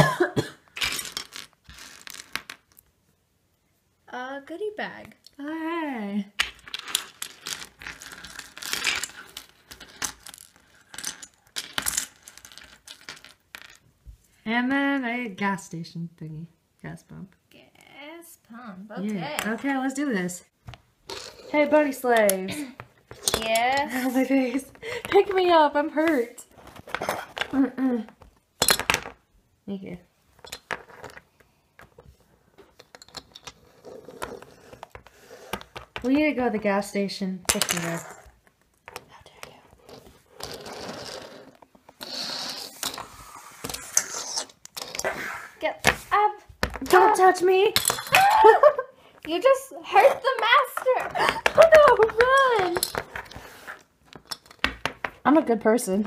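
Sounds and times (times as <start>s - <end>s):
plastic toys clattering on stone: 21.1s - 25.4s, 32.6s - 33.6s, 50.0s - 53.4s, 54.1s - 55.3s
plastic figures clicking: 50.2s - 53.2s.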